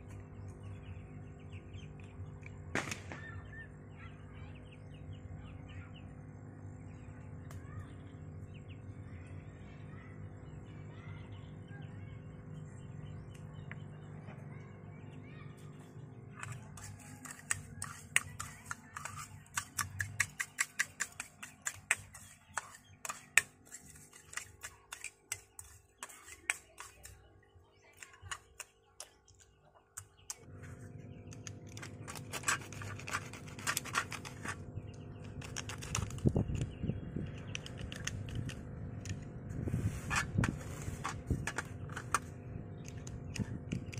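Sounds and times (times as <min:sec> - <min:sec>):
low steady hum: 0:00.0 - 0:43.9
metal spoon stirring in bowl: 0:16.4 - 0:27.3, 0:31.7 - 0:34.6.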